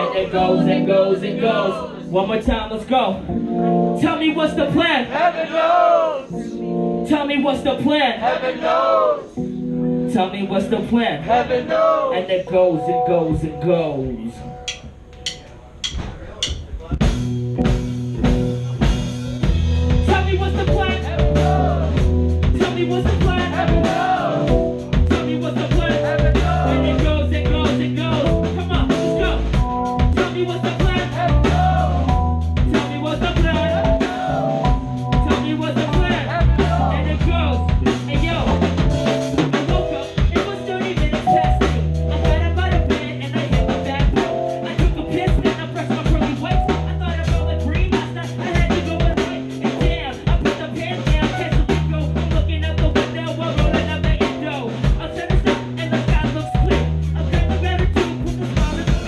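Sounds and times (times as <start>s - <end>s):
live band playing: 12.5s - 59.0s
drum kit beat: 14.1s - 59.0s.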